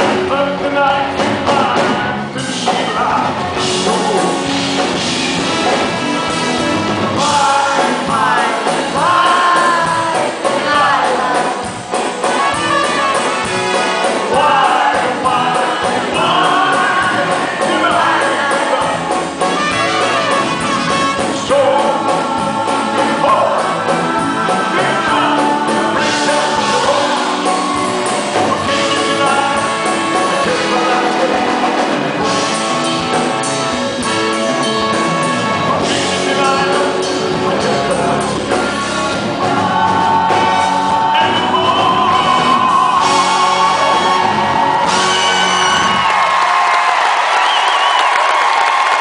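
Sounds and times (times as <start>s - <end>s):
man singing: 0.0s - 5.1s, 7.0s - 13.4s, 14.0s - 32.6s, 34.9s - 44.2s
live band with brass: 0.0s - 49.0s.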